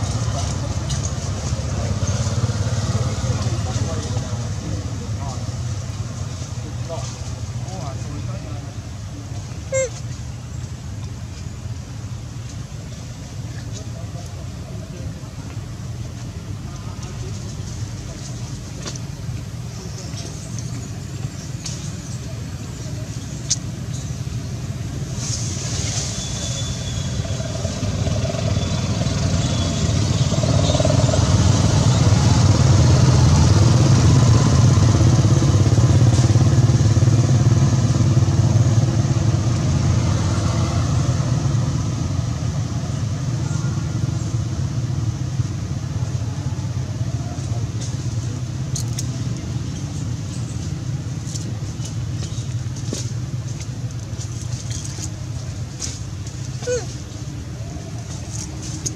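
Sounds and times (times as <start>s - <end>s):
faint hiss: 22.9s - 26.8s
steady low rumble: 31.2s - 58.9s.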